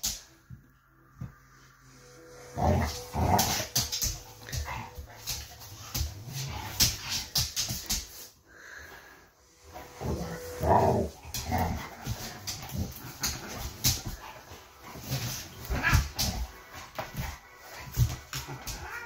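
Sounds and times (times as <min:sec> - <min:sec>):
animals scuffling: 0:09.6 - 0:19.0.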